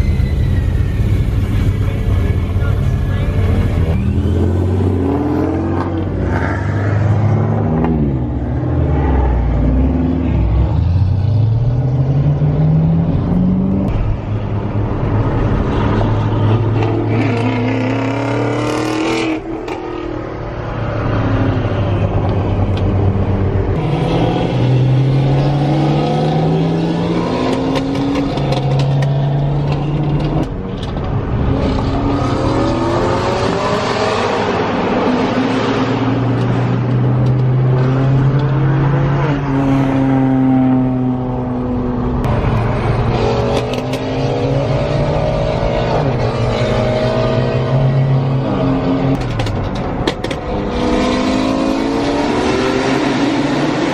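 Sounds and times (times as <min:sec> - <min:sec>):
other car engines running: 0:36.1 - 0:53.9.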